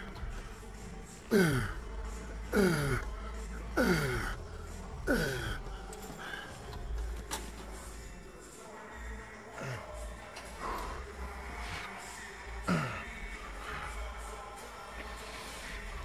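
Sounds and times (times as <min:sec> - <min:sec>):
man groaning with effort: 0:01.3 - 0:01.8, 0:02.5 - 0:03.0, 0:03.8 - 0:04.4, 0:05.1 - 0:05.7.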